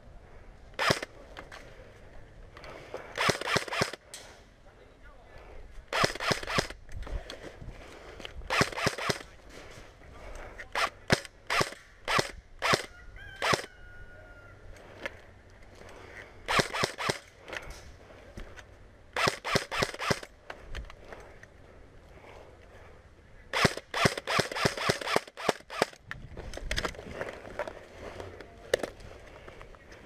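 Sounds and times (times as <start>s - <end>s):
airsoft guns firing: 0.8s - 1.1s, 3.2s - 4.0s, 5.9s - 6.8s, 8.5s - 9.3s, 10.8s - 13.7s, 16.5s - 17.3s, 19.2s - 20.3s, 23.5s - 26.0s.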